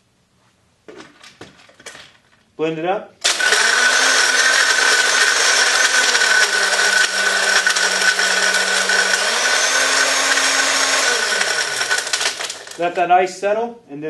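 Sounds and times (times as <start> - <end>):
blender crushing ice: 3.2 - 13.0.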